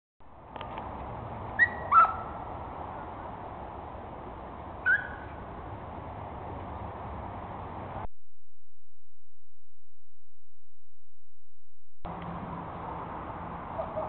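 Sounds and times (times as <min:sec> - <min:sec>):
dog yelping: 0:01.6 - 0:02.3, 0:04.9 - 0:05.3.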